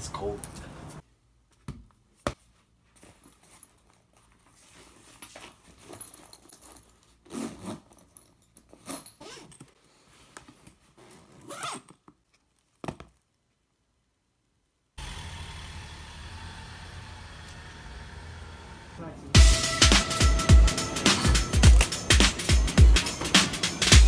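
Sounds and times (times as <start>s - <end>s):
bag rustling: 3.0s - 12.9s
backpack zipper pulls: 6.6s - 9.8s, 10.9s - 12.0s.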